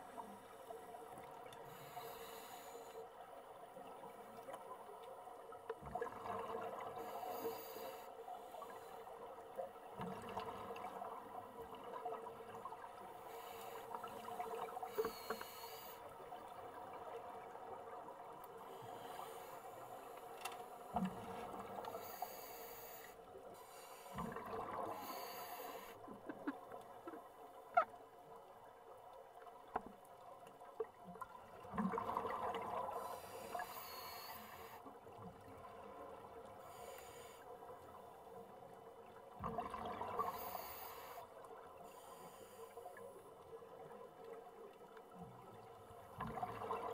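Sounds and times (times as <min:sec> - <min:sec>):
diver breathing through regulator: 0:14.9 - 0:16.0, 0:21.9 - 0:24.2, 0:24.9 - 0:26.0, 0:33.0 - 0:34.8, 0:40.2 - 0:41.3
exhaled bubbles: 0:31.6 - 0:33.0, 0:39.4 - 0:40.3.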